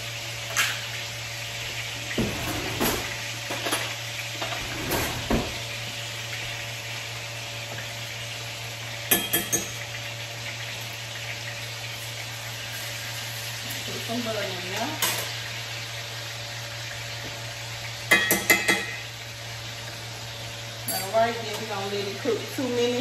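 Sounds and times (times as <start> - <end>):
steak sizzling in a pan: 0.0 - 2.3, 3.0 - 4.6, 5.5 - 23.0
knocks and scrapes: 2.2 - 3.1.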